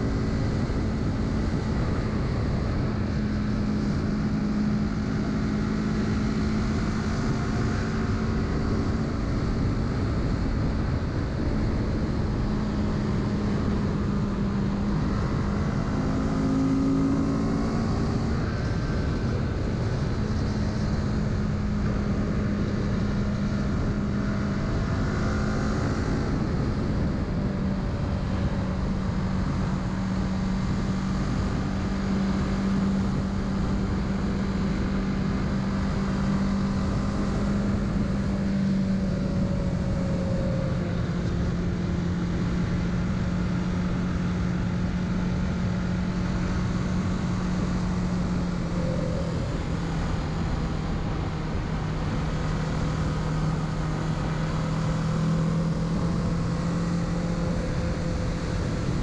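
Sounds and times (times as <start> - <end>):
motorcycle engine running: 0.0 - 59.0
road rumble: 0.0 - 59.0
wind: 0.0 - 59.0.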